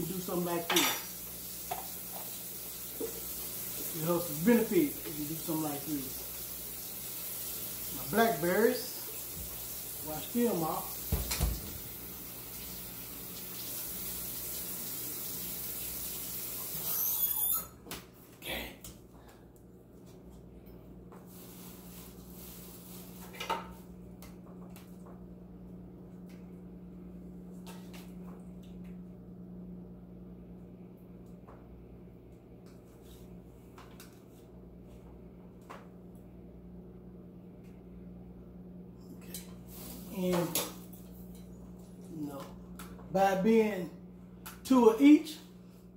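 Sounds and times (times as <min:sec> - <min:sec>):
kitchen tap running: 0:00.0 - 0:17.2.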